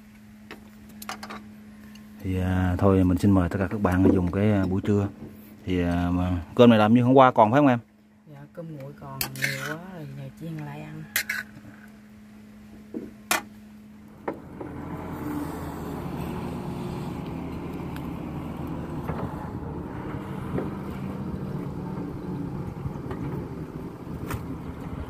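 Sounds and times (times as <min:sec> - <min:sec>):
excavator diesel engine running: 0:13.8 - 0:25.0.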